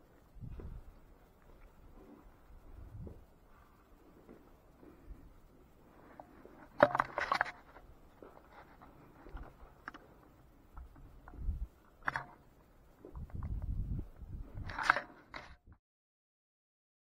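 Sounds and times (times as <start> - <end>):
climbing gear clicks and scrapes: 14.5 - 15.7.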